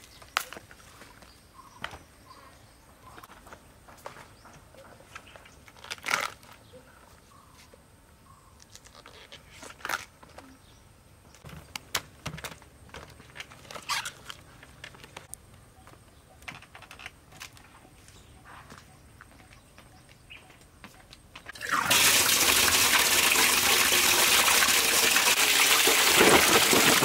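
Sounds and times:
tearing crinkling rustles: 0:05.7 - 0:06.6.

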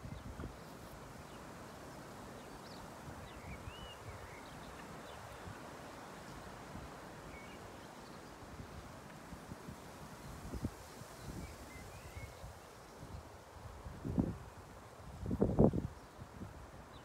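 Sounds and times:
low hiss: 0:00.0 - 0:17.0
faint bird chirps: 0:02.4 - 0:05.6.

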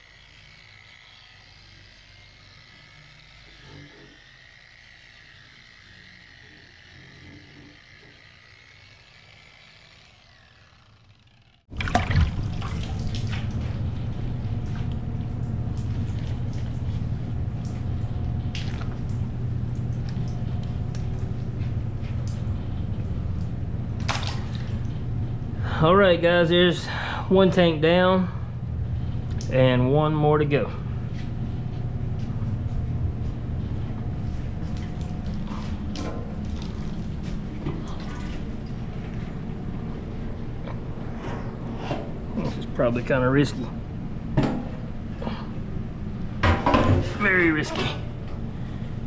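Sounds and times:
low hum: 0:00.0 - 0:49.0
running water: 0:11.7 - 0:13.9.

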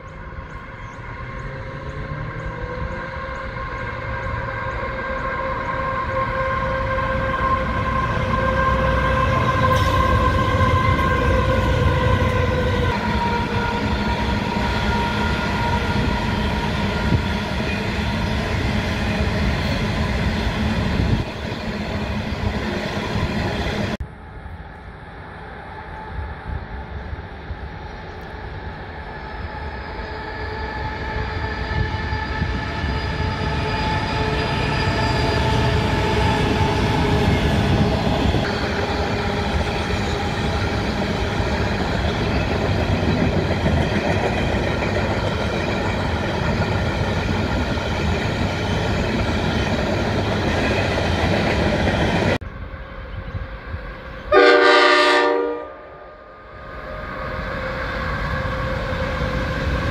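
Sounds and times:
freight train passing: 0:00.0 - 0:59.9
locomotive multi-tone horn: 0:02.1 - 0:16.2, 0:54.3 - 0:56.3.

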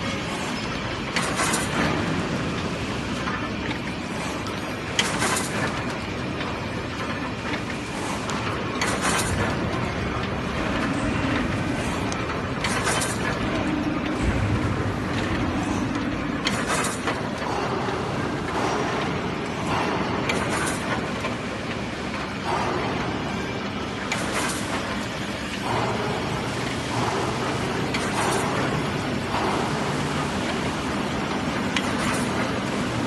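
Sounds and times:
machine mechanical clatter: 0:00.0 - 0:33.0.

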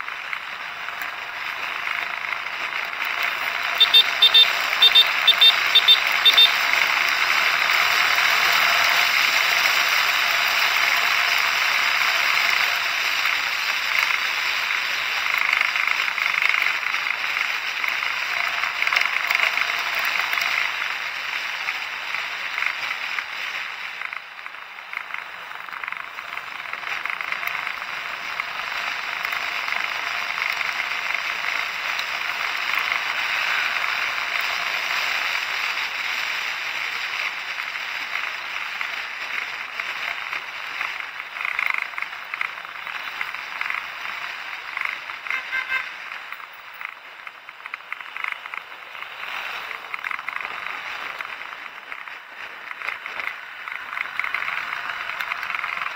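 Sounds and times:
road noise: 0:00.0 - 0:55.9.

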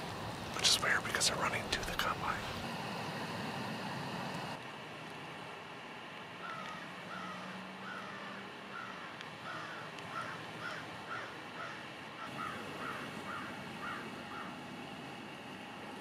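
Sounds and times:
low steady hum: 0:00.0 - 0:16.0
crows cawing: 0:06.4 - 0:14.6.

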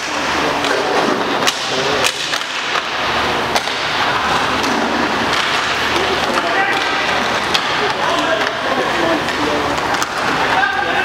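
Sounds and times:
inline skate wheels on rink floor: 0:00.0 - 0:11.0
sticks and puck clacking: 0:00.0 - 0:11.0
faint indistinct voices: 0:04.2 - 0:11.0.

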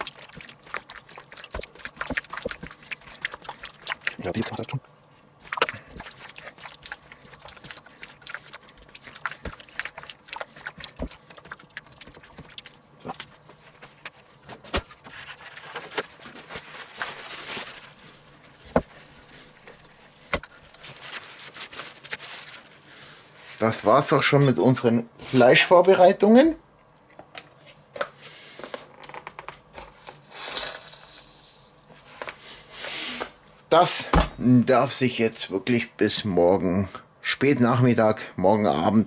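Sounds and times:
wet squelching of kneaded meat: 0:00.0 - 0:14.4.

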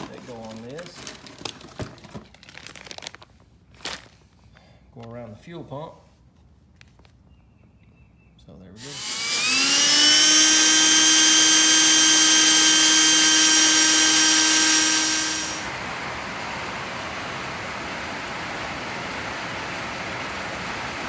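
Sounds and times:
electric drill boring into steel: 0:08.8 - 0:15.7.

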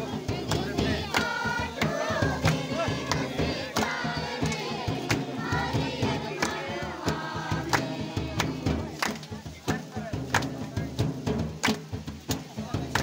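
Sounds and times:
women and girls singing together: 0:00.0 - 0:09.3
sharp rhythmic beat: 0:00.0 - 0:13.0.

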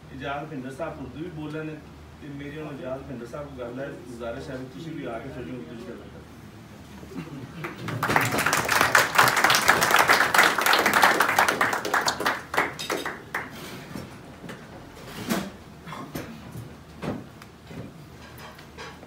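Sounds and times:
people applauding: 0:07.6 - 0:13.9.

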